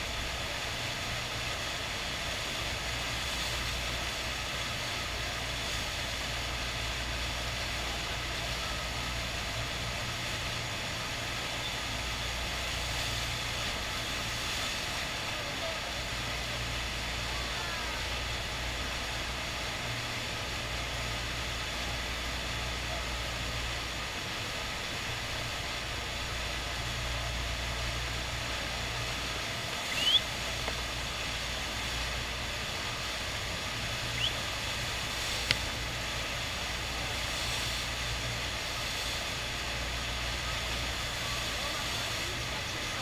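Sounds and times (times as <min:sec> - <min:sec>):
water rushing over surface: 0:00.0 - 0:43.0
high rising chirps: 0:29.9 - 0:30.2.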